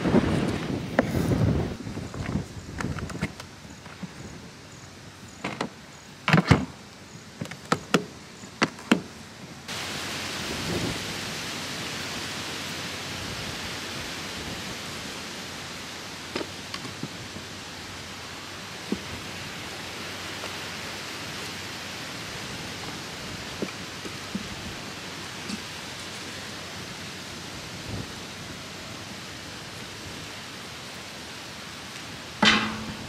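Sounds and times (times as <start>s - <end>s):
wind hiss on microphone: 0.0s - 6.0s, 9.5s - 33.0s
firewood knocking: 32.4s - 33.0s.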